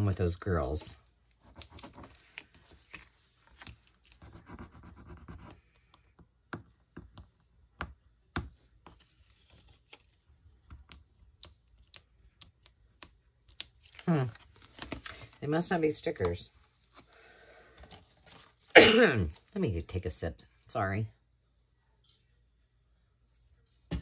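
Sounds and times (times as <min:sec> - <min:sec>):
paper scratching and handling: 0:01.3 - 0:05.5.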